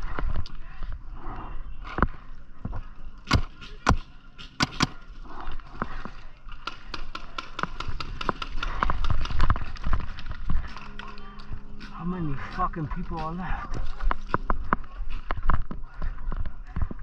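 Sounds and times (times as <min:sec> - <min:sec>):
paintball gun pops: 0:03.3 - 0:05.0.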